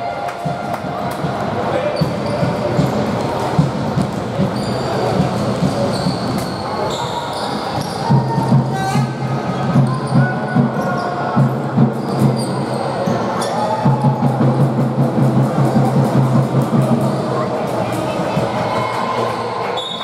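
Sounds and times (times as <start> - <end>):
sneakers squeaking on floor: 1.8 - 13.6.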